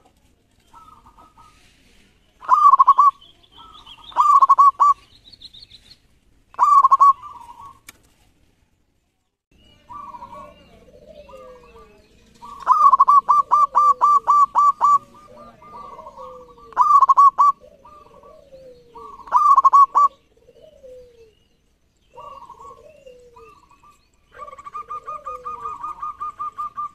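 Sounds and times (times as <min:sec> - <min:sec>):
dove cooing: 0:00.6 - 0:01.7, 0:02.4 - 0:05.0, 0:06.5 - 0:07.8, 0:09.7 - 0:26.9.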